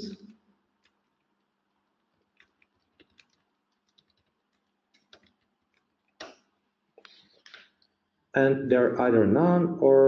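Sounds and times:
soft keyboard keystrokes: 2.1 - 6.3.

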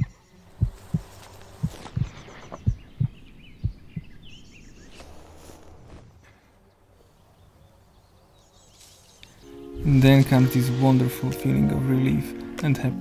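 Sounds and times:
heartbeat thuds: 0.0 - 4.3
bird chirps: 0.0 - 5.1.

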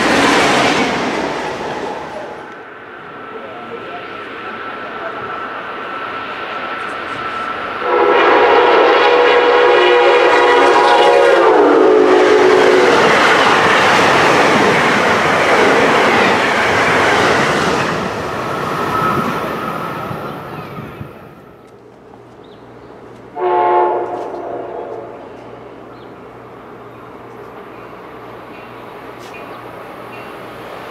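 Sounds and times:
passing train cars clattering: 0.0 - 30.9
train horn: 7.8 - 13.2, 23.3 - 25.4.

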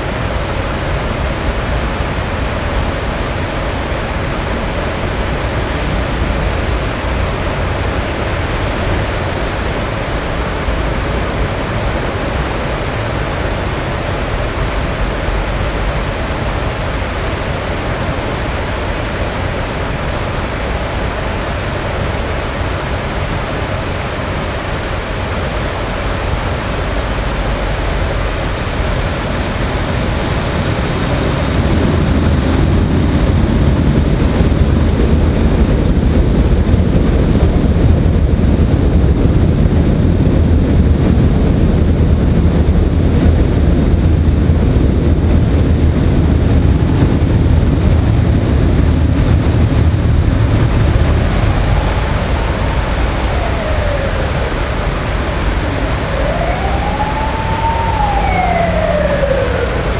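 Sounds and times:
road traffic rumble: 0.0 - 59.9
emergency siren wailing: 49.4 - 59.9.

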